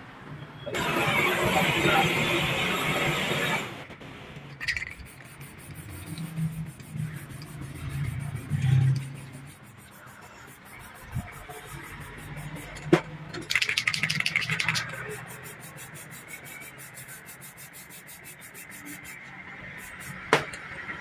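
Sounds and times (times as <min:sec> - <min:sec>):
spray can rattling: 0:04.5 - 0:19.2, 0:19.8 - 0:20.5
aerosol spray can hissing: 0:04.7 - 0:12.8, 0:13.5 - 0:19.2, 0:19.8 - 0:20.4.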